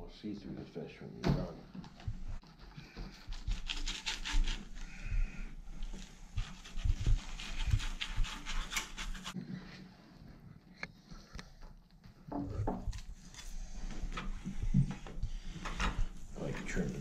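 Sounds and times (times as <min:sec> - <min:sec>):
knife scraping fish fillet: 0:03.1 - 0:04.8, 0:07.4 - 0:09.4.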